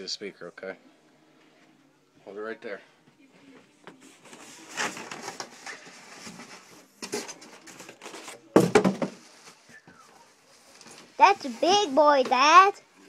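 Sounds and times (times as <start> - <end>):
foam and plastic rustling: 4.0 - 12.7.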